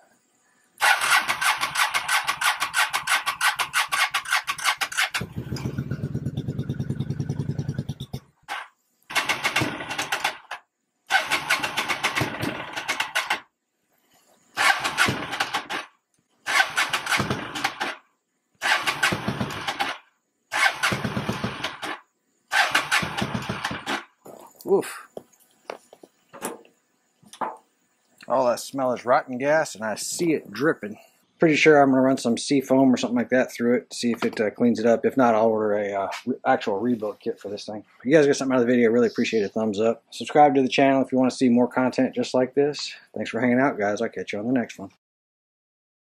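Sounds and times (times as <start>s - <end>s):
motorcycle engine cranking: 0.8s - 13.4s, 14.6s - 15.9s, 16.5s - 18.0s, 18.6s - 24.1s.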